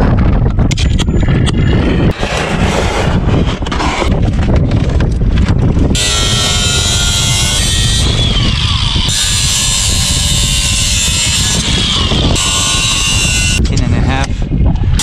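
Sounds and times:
wind buffeting microphone: 0.0s - 15.0s
angle grinder cutting steel: 6.0s - 13.6s.

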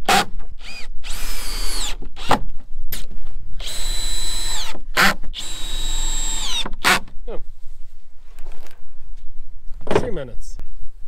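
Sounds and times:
power drill whining: 0.6s - 2.3s, 3.6s - 7.0s.

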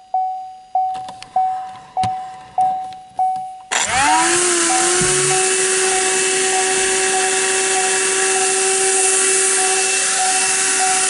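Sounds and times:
handheld vacuum motor whine: 3.7s - 11.0s.

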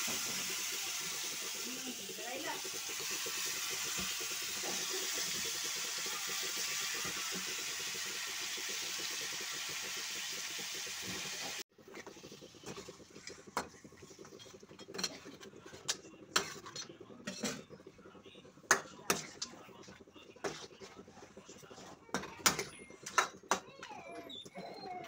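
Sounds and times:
meat sizzling in hot oil: 0.0s - 13.4s.

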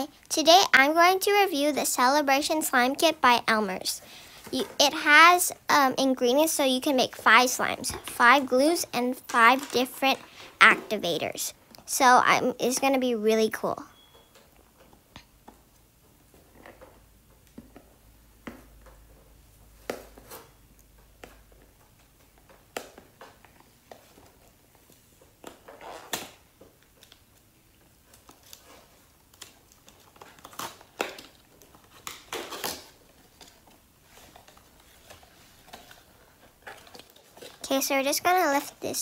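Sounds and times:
cardboard crinkling and tearing: 28.1s - 37.7s.

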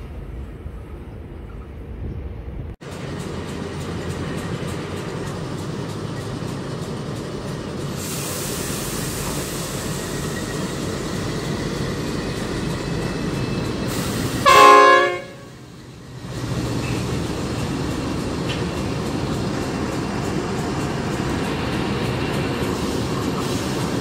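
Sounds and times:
diesel locomotive engine rumbling: 0.0s - 24.0s
locomotive horn toot: 14.4s - 15.6s.

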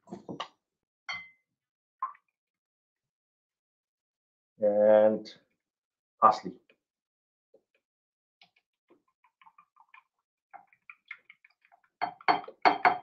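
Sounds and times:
whisk knocking against bowl: 12.0s - 13.0s.

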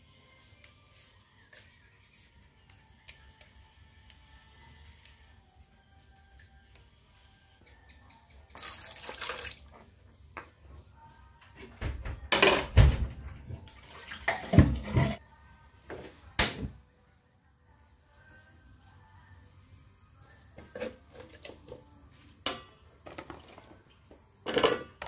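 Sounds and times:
water splashing into metal pot: 8.5s - 9.7s, 13.7s - 15.1s.

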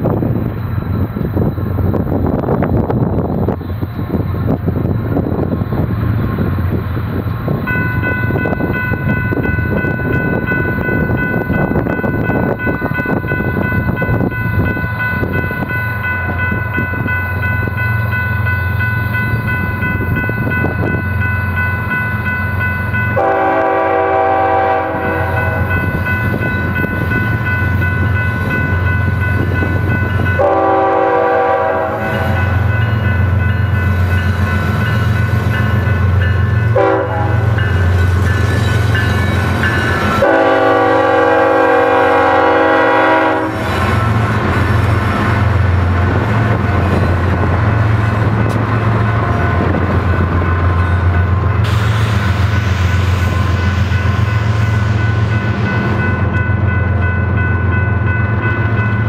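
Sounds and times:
diesel locomotive engine rumble: 0.0s - 59.0s
steady high ringing: 0.4s - 59.0s
train air horn blasts: 23.1s - 25.7s, 30.4s - 32.6s, 36.7s - 37.7s, 40.2s - 43.8s.

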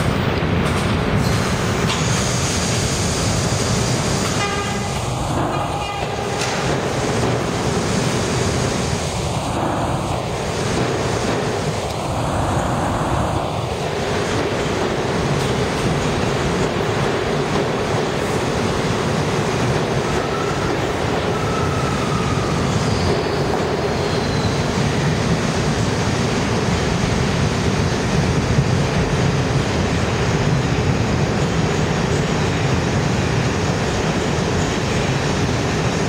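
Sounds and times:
subway train rumbling: 0.0s - 36.0s
train horn blast: 4.3s - 5.0s, 5.8s - 6.5s.

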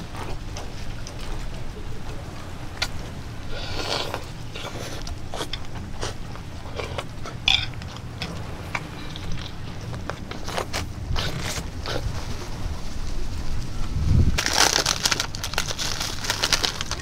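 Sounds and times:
person chewing: 2.8s - 12.3s.

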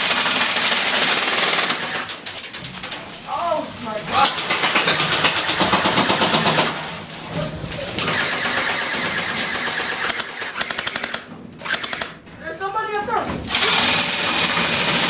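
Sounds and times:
airsoft guns firing full auto: 0.0s - 2.5s, 4.4s - 6.8s, 8.0s - 12.2s, 13.5s - 15.0s.

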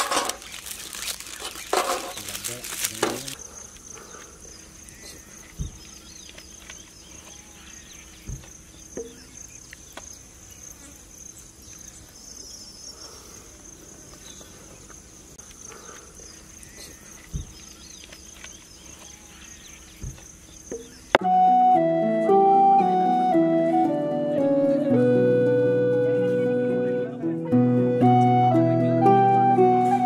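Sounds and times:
foil trays thumping on metal platter: 0.0s - 3.4s
high-pitched insect chorus: 0.0s - 21.2s.

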